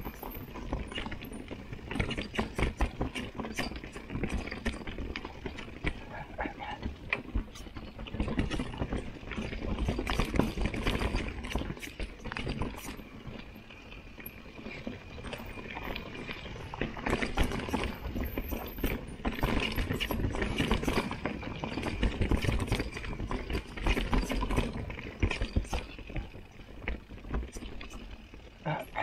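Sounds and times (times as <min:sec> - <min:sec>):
mountain bike rattling on trail: 0:00.0 - 0:29.0.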